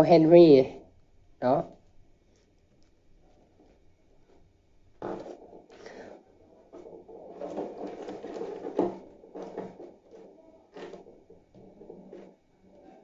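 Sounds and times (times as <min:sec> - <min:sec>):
objects knocking on wooden desk: 0:05.0 - 0:06.1, 0:06.7 - 0:12.4.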